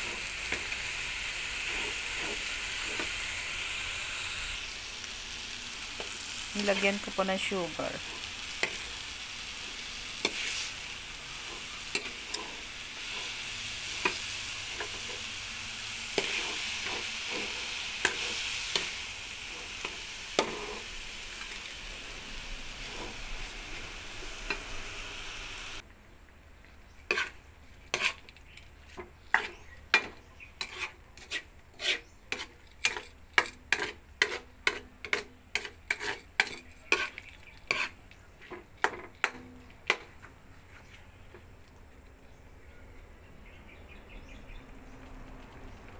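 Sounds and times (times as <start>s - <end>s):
metal spatula scraping a pan: 0.0s - 3.8s, 5.8s - 21.8s, 22.4s - 25.0s, 27.1s - 40.1s
paste sizzling in a wok: 0.0s - 25.8s, 26.9s - 40.1s.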